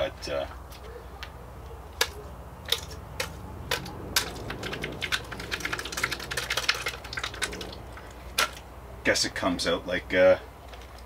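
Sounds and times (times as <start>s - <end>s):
plastic tub clicking and crackling: 2.0s - 8.7s.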